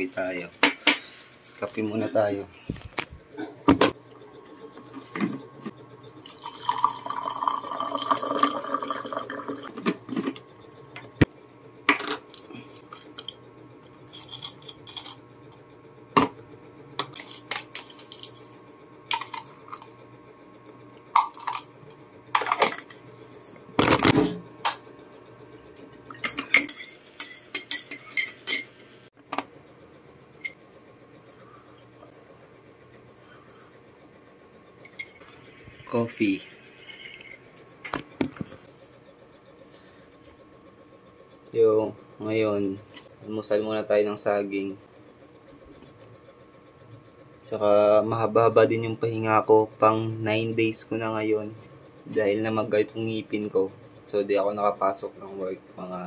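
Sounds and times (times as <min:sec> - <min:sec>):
hot water pouring into a mug: 0:06.2 - 0:09.7
spoon clinking against a mug: 0:26.1 - 0:28.7.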